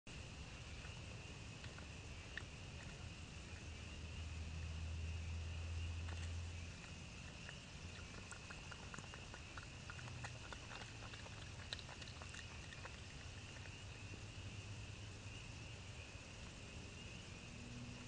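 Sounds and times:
night insects chorus: 0:00.1 - 0:18.0.

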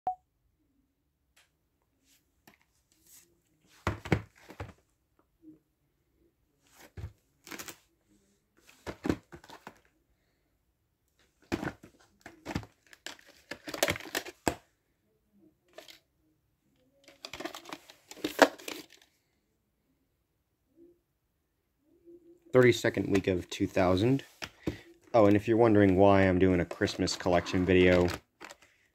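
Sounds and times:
plastic tape cases clicking: 0:12.4 - 0:14.6.

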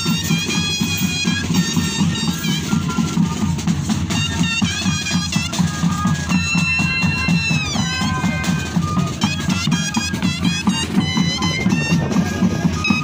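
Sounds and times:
cane flutes playing a melody: 0:00.0 - 0:13.0
steady drum beat: 0:00.0 - 0:13.0.

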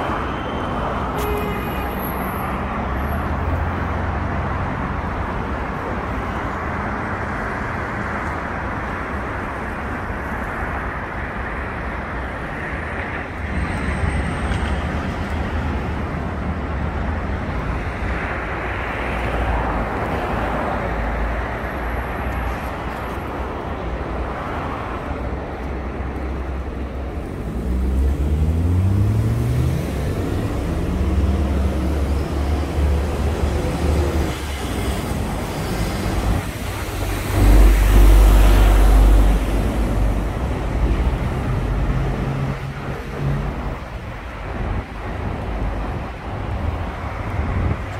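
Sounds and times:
road traffic passing: 0:00.0 - 0:47.9
vehicle engine accelerating: 0:27.2 - 0:34.2.

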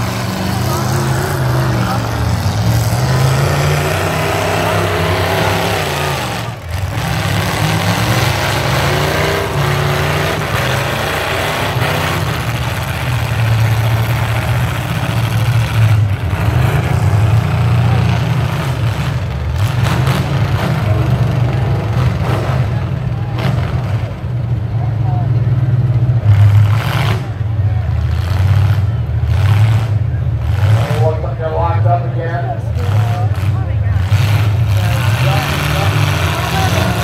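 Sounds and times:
truck engines revving: 0:00.0 - 0:37.0.

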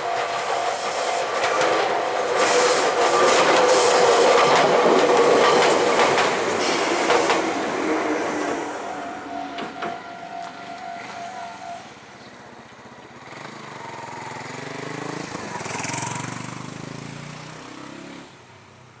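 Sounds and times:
steady train tone: 0:00.0 - 0:14.3
vehicle engine passing: 0:13.2 - 0:18.3.

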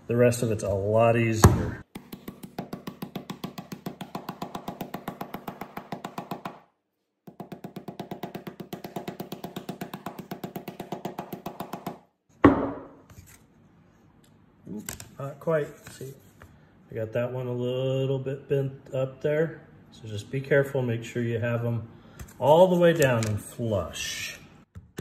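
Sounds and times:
mallet tapping plywood: 0:01.4 - 0:06.7, 0:07.3 - 0:12.9.

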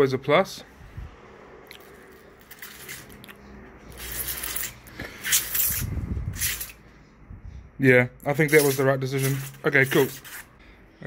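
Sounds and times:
low rumble: 0:00.7 - 0:02.5
plastic pot scraping on glass: 0:08.4 - 0:10.6.

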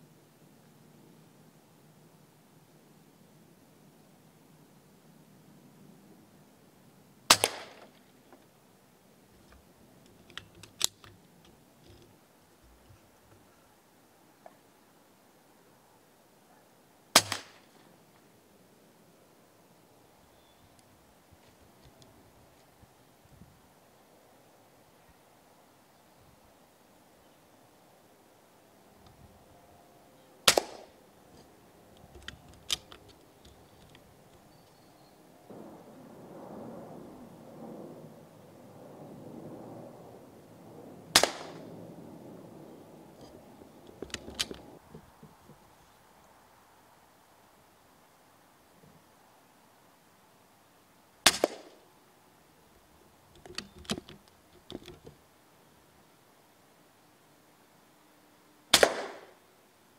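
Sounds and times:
air rifle firing: 0:07.3 - 0:07.9, 0:17.2 - 0:17.7, 0:30.5 - 0:31.0, 0:41.1 - 0:41.7, 0:51.3 - 0:51.8, 0:58.8 - 0:59.3
small clicks: 0:09.4 - 0:13.4, 0:30.5 - 0:34.8, 0:43.2 - 0:45.6, 0:53.3 - 0:55.2.

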